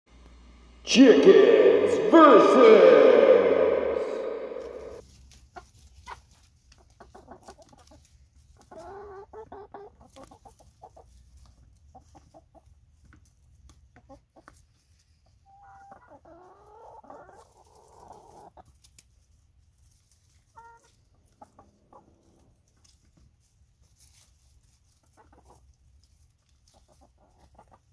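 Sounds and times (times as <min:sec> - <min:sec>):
hens clucking: 0:04.6 - 0:18.9, 0:20.2 - 0:23.3, 0:24.9 - 0:27.9.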